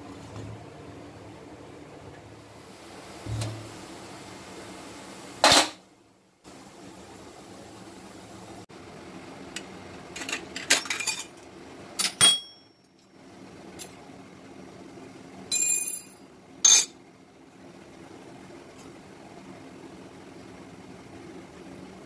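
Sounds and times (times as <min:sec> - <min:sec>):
metal parts clinking and clattering: 0:10.2 - 0:11.4.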